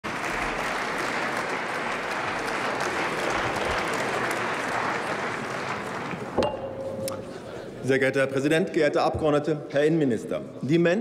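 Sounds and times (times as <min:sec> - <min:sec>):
audience applause: 0:00.0 - 0:06.4.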